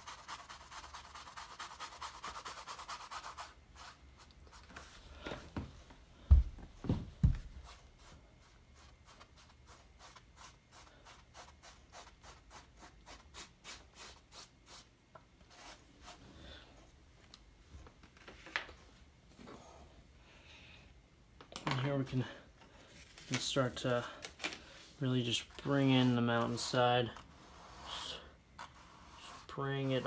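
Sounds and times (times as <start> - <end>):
brush scrubbing paint on canvas: 0.0 - 5.0, 7.6 - 14.9, 25.1 - 30.0.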